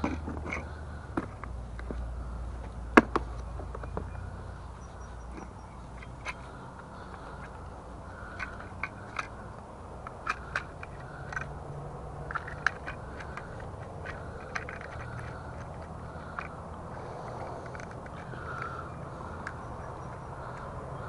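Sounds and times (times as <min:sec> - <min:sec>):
outdoor background noise: 0:00.0 - 0:21.0
hard plastic pieces clicking: 0:08.2 - 0:11.6, 0:12.2 - 0:20.8.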